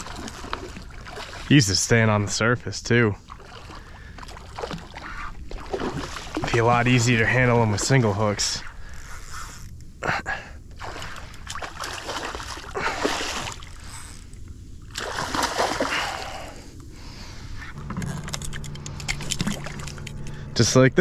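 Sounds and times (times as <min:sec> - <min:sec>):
fish thrashing and splashing: 0:00.0 - 0:01.5, 0:03.3 - 0:08.0, 0:10.8 - 0:16.6, 0:18.1 - 0:20.4.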